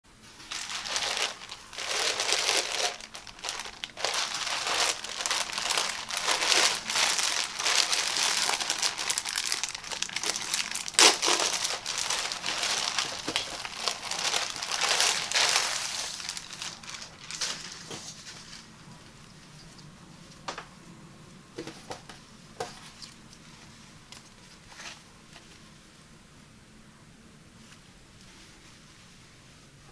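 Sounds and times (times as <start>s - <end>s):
plastic bag crinkling: 0.2s - 18.8s.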